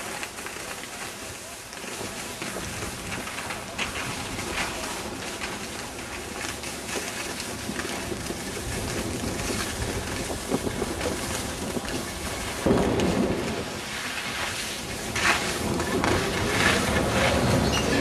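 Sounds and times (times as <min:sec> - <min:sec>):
skis sliding over snow: 0:00.0 - 0:18.0
wind rushing over microphone: 0:07.6 - 0:18.0.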